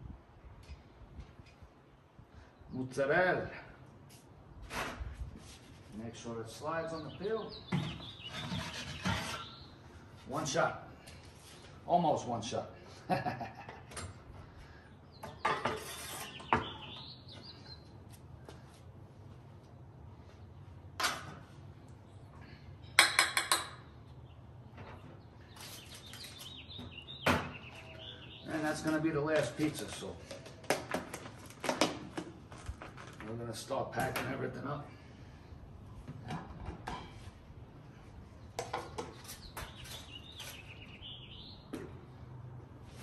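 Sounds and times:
bird chirping: 0:06.6 - 0:09.9, 0:14.8 - 0:18.0, 0:24.0 - 0:29.0, 0:38.4 - 0:41.8.

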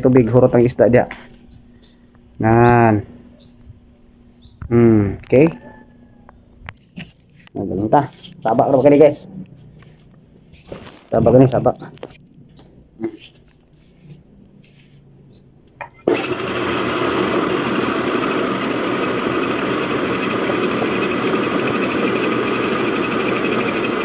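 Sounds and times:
grinding mill running: 0:16.0 - 0:24.0.

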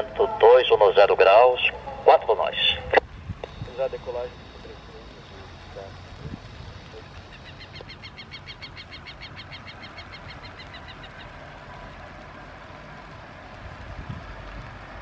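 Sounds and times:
jet taxiing rumble: 0:00.0 - 0:15.0
bird trilling: 0:07.0 - 0:11.4.

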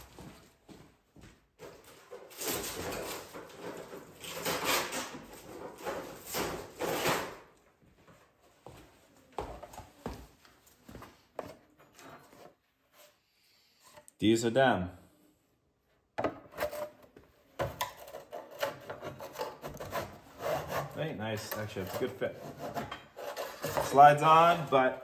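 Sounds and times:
objects rummaged and clattering: 0:01.6 - 0:07.4.

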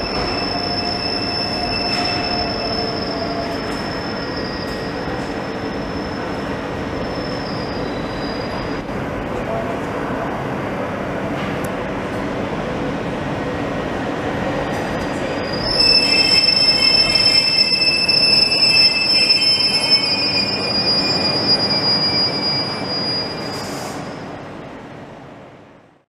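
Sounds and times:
high brake squeal: 0:00.0 - 0:08.8, 0:15.2 - 0:24.3
train rolling rumble: 0:00.0 - 0:25.9.

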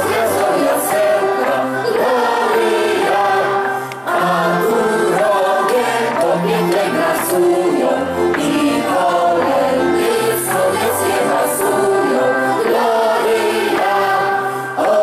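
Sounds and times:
group singing a carol: 0:00.0 - 0:15.0.

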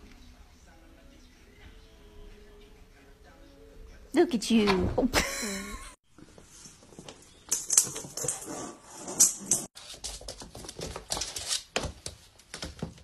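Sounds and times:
cats batting ball on wooden floor: 0:09.8 - 0:13.0.

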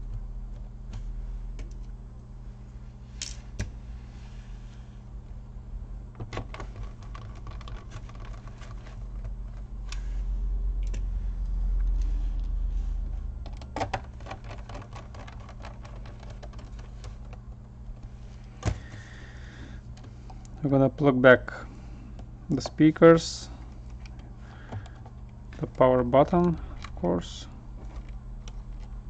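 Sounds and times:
clicks and taps on plastic case: 0:06.2 - 0:09.7, 0:13.5 - 0:17.6.

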